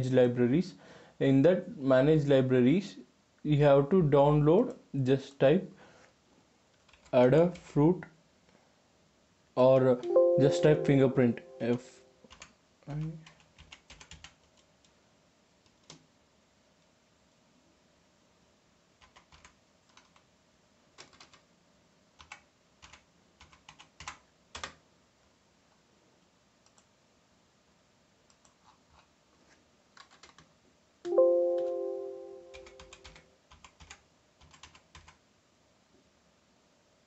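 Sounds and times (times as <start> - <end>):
keyboard typing: 6.8 - 7.7, 10.0 - 12.5, 13.2 - 14.7, 19.0 - 20.2, 21.0 - 21.4, 22.2 - 24.7, 30.0 - 30.5, 31.1 - 35.2
chime-like tone: 10.0 - 12.0, 31.1 - 32.8.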